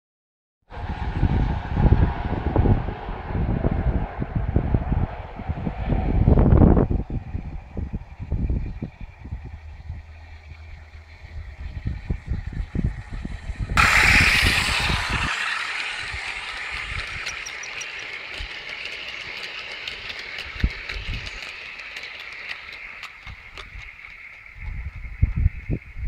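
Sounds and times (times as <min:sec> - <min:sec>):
wheel clicks over rail joints: 0:07.5 - 0:25.4
model train wagons rolling hiss: 0:09.0 - 0:24.6.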